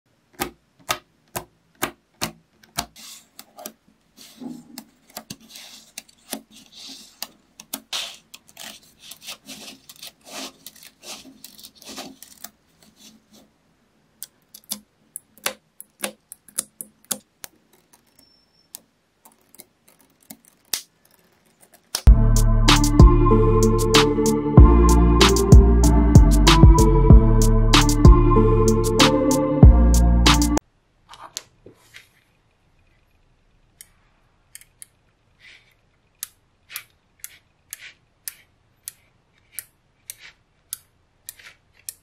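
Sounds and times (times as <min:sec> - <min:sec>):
magnetic balls clicking: 0:14.2 - 0:22.1.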